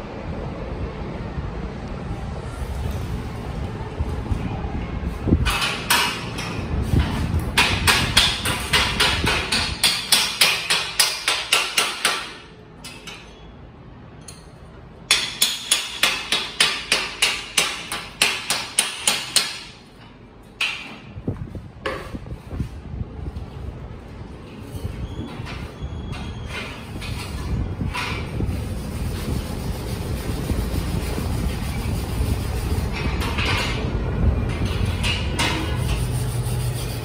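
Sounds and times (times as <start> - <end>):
hammer striking steel plate: 15.1 - 19.8.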